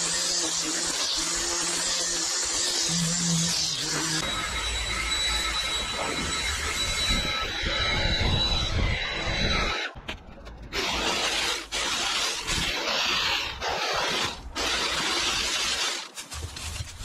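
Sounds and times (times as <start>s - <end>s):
leaf blower whine: 2.8s - 8.5s.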